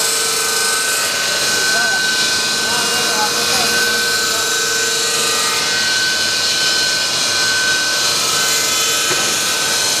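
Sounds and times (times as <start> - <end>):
extrusion machinery hissing and whining: 0.0 - 10.0.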